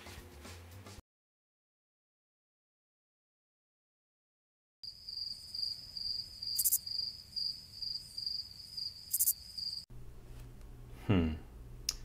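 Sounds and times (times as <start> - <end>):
crickets chirping: 4.8 - 9.8.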